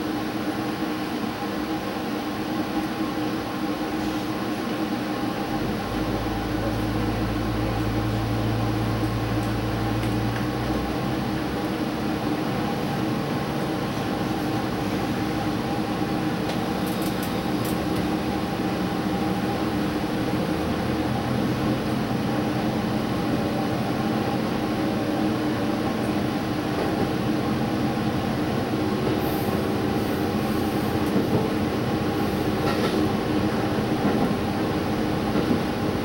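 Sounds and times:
diesel train running: 0.0 - 36.0.

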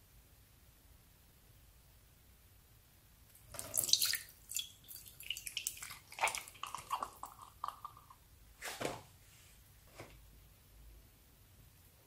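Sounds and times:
wet squelches: 3.3 - 8.2
water dripping into glass bowl: 3.4 - 8.2.

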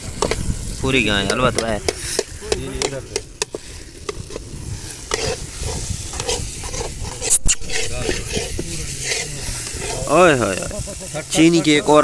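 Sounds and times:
food sizzling: 0.0 - 12.0
metal spoon scraping a pan: 1.2 - 10.6.

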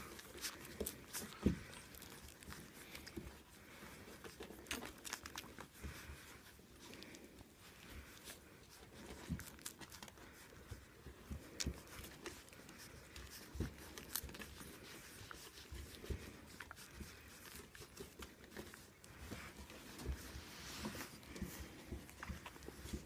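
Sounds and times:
puppies suckling wet clicks: 0.0 - 23.0.

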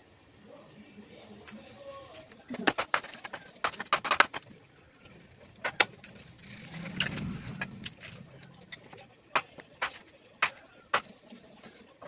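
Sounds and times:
low rumble: 6.0 - 9.0.

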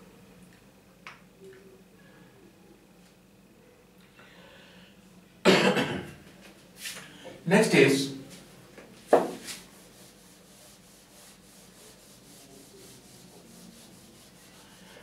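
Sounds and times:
duster rubbing on whiteboard: 9.1 - 15.0.

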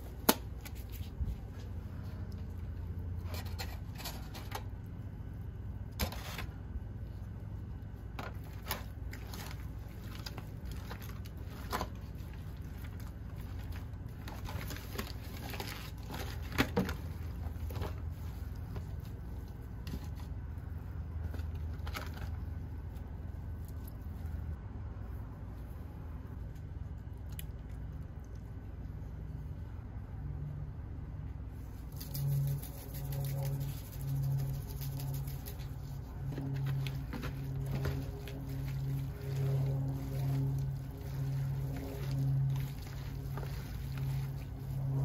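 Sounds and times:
foil crinkling: 8.3 - 18.2.

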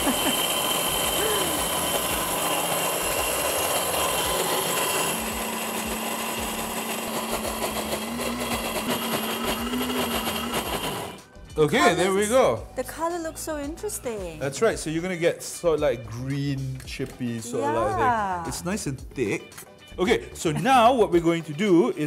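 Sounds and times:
electric blender running: 0.0 - 12.7.

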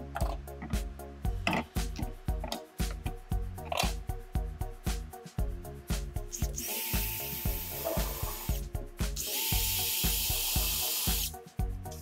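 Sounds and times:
background music with beat: 0.0 - 12.0
cordless drill drilling into wood: 9.3 - 11.3.

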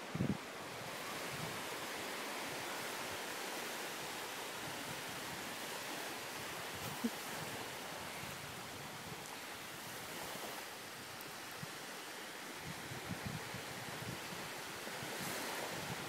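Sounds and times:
small waves washing onto beach: 0.0 - 16.0
wind: 0.0 - 16.0.

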